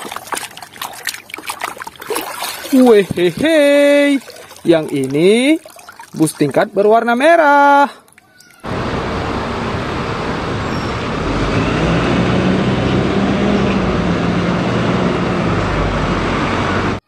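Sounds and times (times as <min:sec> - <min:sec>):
street traffic noise: 0:07.8 - 0:17.0
bus engine driving past: 0:08.7 - 0:17.0.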